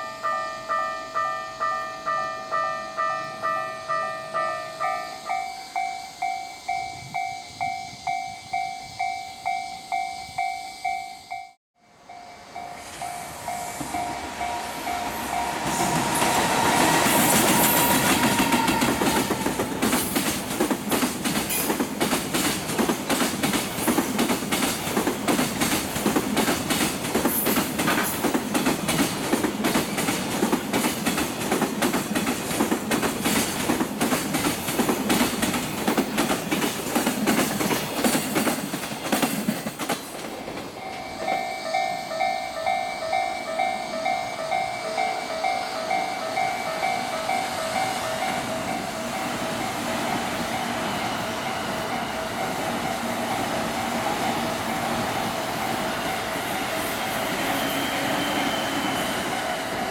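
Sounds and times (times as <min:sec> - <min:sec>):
level-crossing bell ringing: 0:00.0 - 0:19.9, 0:40.7 - 0:53.6
train wheels clattering over rail joints: 0:15.6 - 0:41.5.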